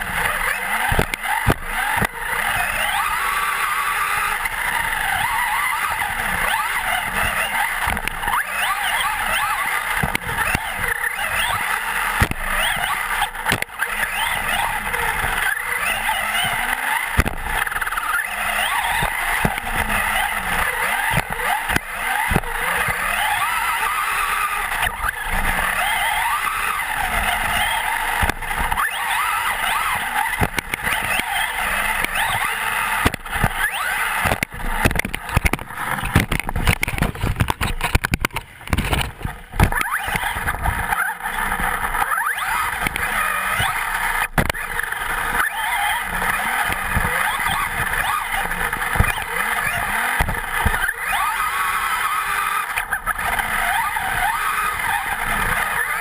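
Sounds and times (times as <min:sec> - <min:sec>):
rc truck motor whine: 0:00.0 - 0:56.0
tyres running on dirt: 0:00.0 - 0:56.0
knocks from bumps: 0:16.5 - 0:17.9, 0:32.1 - 0:40.9.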